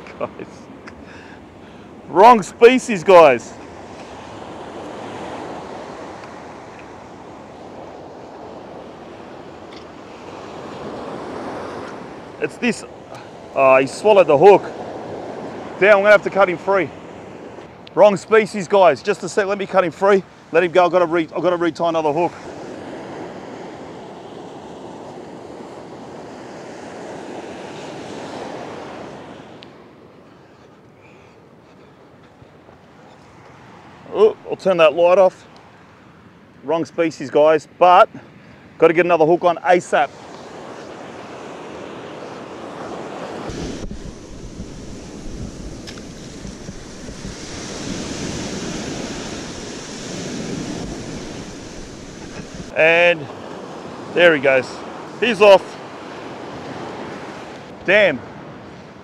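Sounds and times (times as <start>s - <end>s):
waves washing on sand: 0.0s - 30.3s, 32.2s - 59.0s
surf breaking on beach: 2.0s - 29.8s, 39.4s - 59.0s
wind on microphone: 41.7s - 52.8s.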